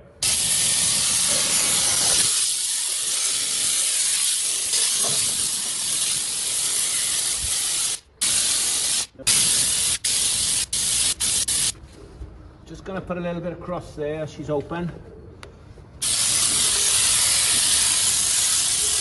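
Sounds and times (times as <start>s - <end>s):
air oil sprayer hissing: 0.2s - 11.7s, 16.0s - 19.0s.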